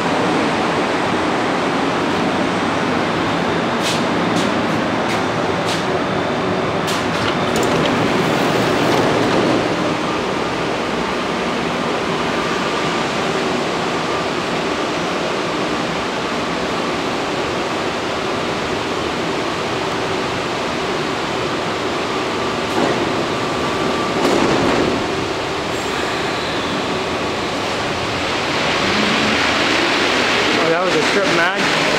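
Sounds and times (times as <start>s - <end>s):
metro train hissing at platform: 0.0s - 7.2s, 8.0s - 31.9s
train doors closing thumps: 6.8s - 10.2s, 22.7s - 23.4s, 24.1s - 26.8s.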